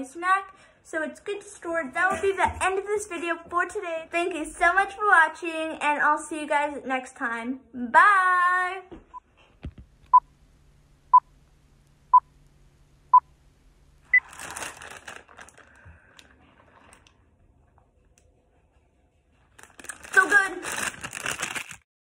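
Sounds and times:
crinkly rustling noise: 0:14.0 - 0:17.9, 0:19.4 - 0:21.9.

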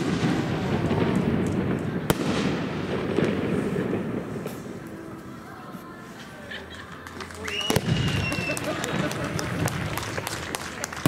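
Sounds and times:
fireworks sharp bang: 0:00.0 - 0:04.9
rumble of firework explosions: 0:00.0 - 0:05.3, 0:07.7 - 0:11.0.

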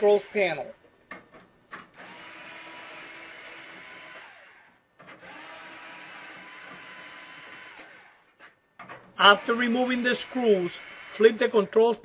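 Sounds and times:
power screwdriver motor running: 0:02.0 - 0:08.2, 0:09.2 - 0:11.5.

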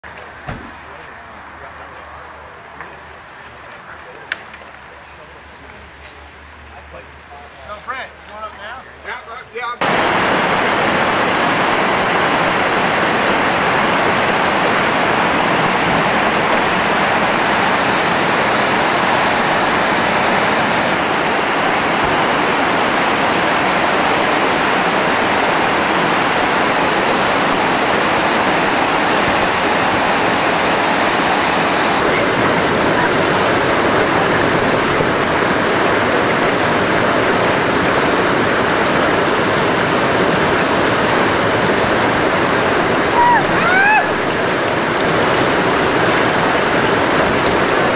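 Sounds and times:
rapids rushing over rocks: 0:09.8 - 0:47.9.

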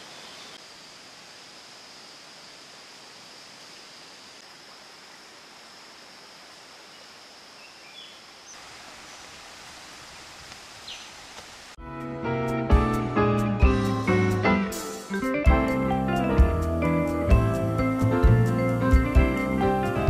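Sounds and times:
stream rushing: 0:08.2 - 0:11.8.

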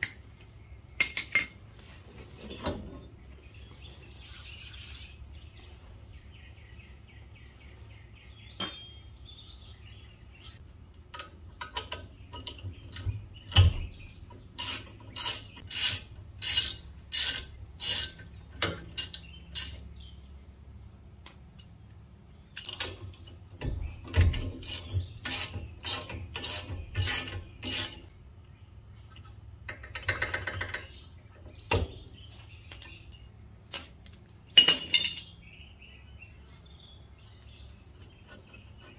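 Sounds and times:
ratchet wrench clicking: 0:14.6 - 0:18.3, 0:18.9 - 0:19.8, 0:24.6 - 0:28.0.

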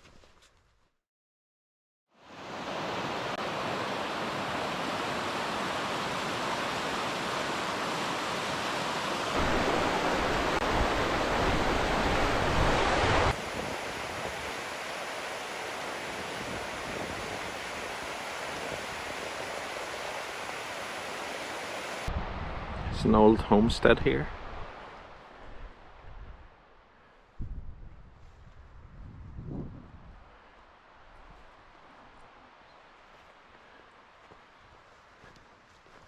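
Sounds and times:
river water rushing: 0:02.2 - 0:22.1.

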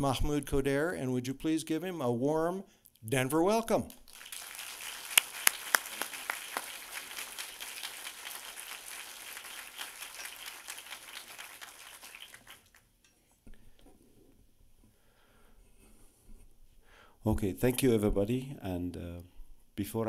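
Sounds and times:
audience applauding: 0:04.0 - 0:12.9.

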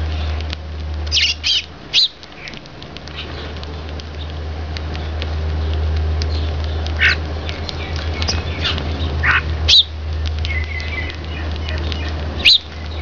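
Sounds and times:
steady low hum: 0:00.0 - 0:13.0
sparrows chirping: 0:01.1 - 0:13.0.

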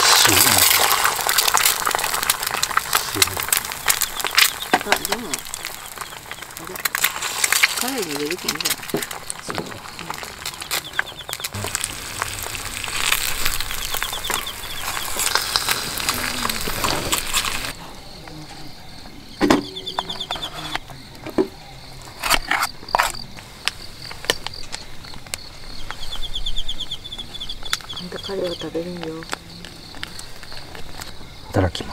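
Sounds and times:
crickets trilling: 0:00.0 - 0:31.9
eggs sizzling in a pan: 0:00.0 - 0:31.9.

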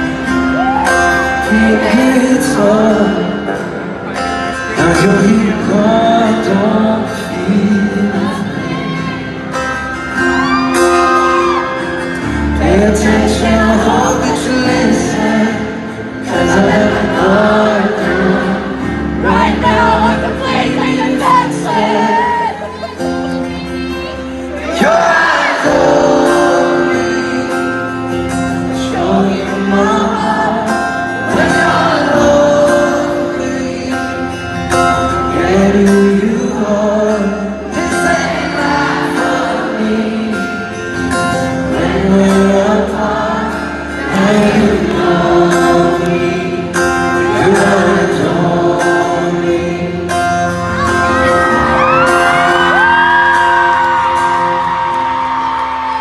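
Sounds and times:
audience voices: 0:00.0 - 0:56.0
strummed acoustic guitar: 0:00.0 - 0:56.0
man singing through pa: 0:01.1 - 0:03.9, 0:04.6 - 0:09.0, 0:12.4 - 0:22.8, 0:24.6 - 0:28.0, 0:28.6 - 0:50.6
high voice from crowd: 0:08.1 - 0:12.1, 0:19.2 - 0:25.9, 0:50.6 - 0:56.0.

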